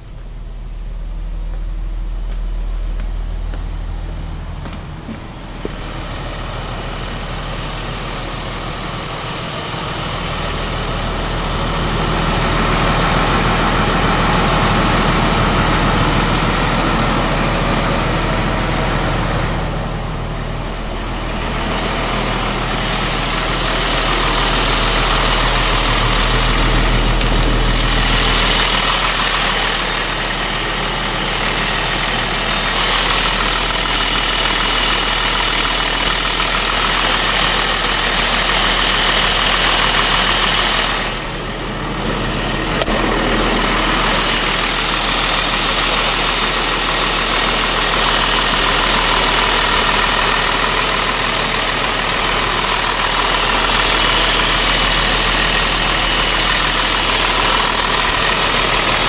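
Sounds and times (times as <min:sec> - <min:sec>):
diesel bus engine idling: 0:00.0 - 0:59.0
thin high whine: 0:00.0 - 0:59.0.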